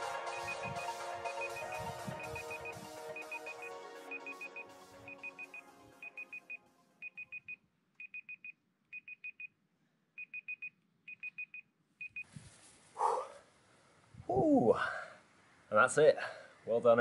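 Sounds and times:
background music: 0.0 - 7.0
electronic timer alarm beeping: 0.2 - 9.5, 10.2 - 12.3.

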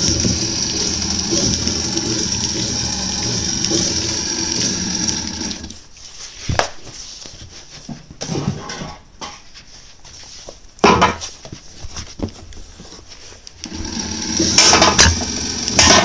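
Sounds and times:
small electric motor whirring: 0.0 - 5.8.

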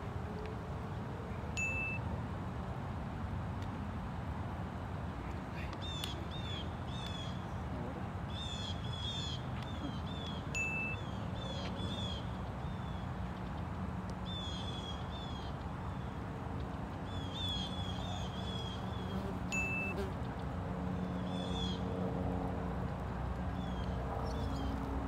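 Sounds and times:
birds chirping: 23.5 - 24.9.

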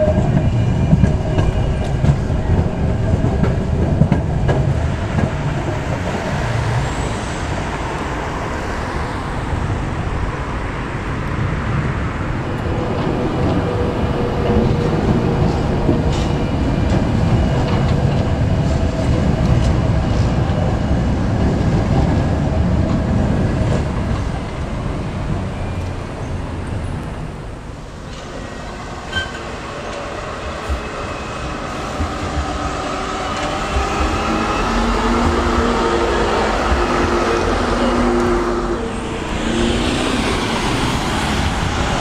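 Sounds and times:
tram rolling rumble: 0.0 - 42.0.

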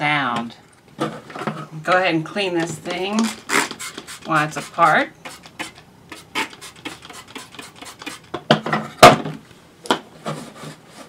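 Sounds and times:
spray bottle squirts: 3.2 - 8.3.

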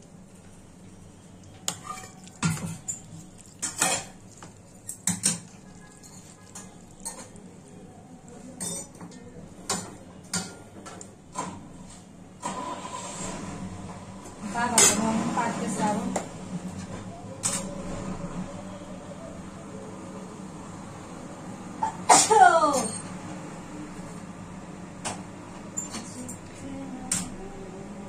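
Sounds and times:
metal spoon clinking on a dish: 1.7 - 7.7, 8.6 - 10.6.

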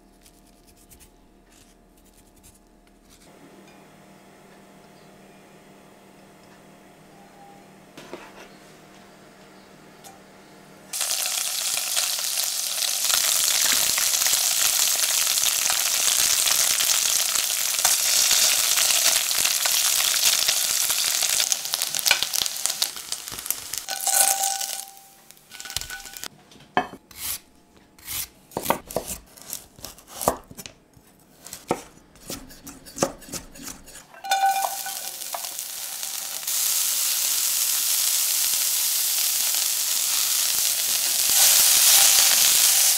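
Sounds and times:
food sizzling in oil: 10.9 - 26.3, 34.1 - 42.9.

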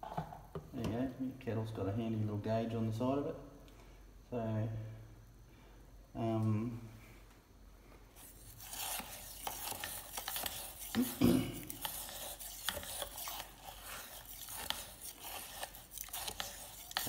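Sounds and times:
knife scraping salt in water: 8.2 - 17.0.

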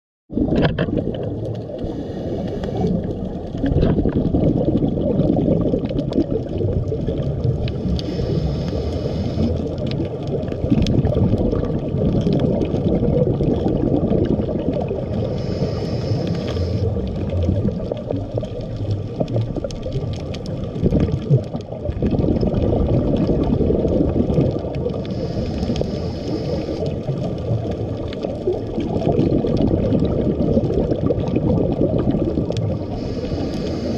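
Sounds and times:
underwater rumble and bubbles: 0.3 - 33.9
diver breathing hiss: 1.8 - 3.0, 7.9 - 9.6, 15.2 - 17.0, 25.0 - 27.0, 32.8 - 33.9
sharp underwater clicks: 16.0 - 31.4.

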